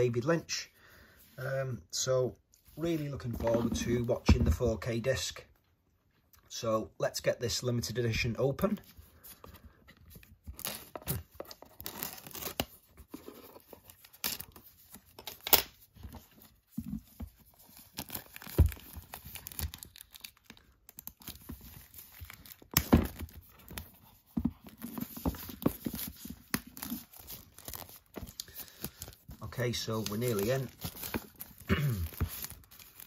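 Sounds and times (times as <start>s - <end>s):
packaging tearing and crinkling: 10.6s - 12.9s, 17.6s - 23.8s, 25.6s - 33.0s.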